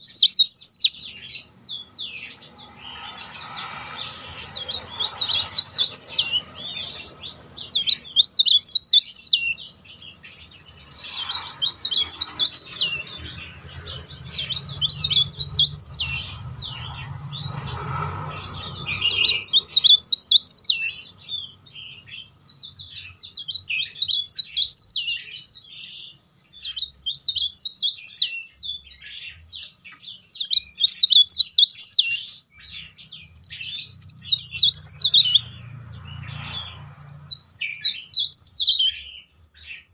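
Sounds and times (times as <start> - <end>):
songbird whistling trills: 0.0 - 39.9.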